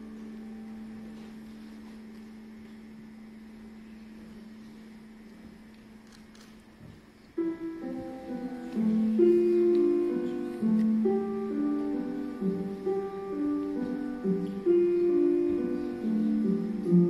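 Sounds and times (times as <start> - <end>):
soft keyboard music: 0.0 - 17.0.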